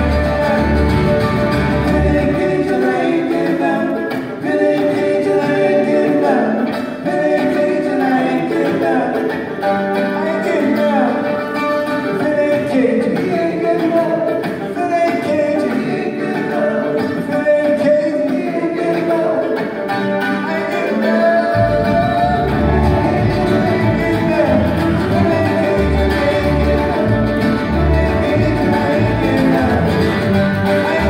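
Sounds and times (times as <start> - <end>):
acoustic string band playing: 0.0 - 31.0
deep bass notes: 21.6 - 31.0.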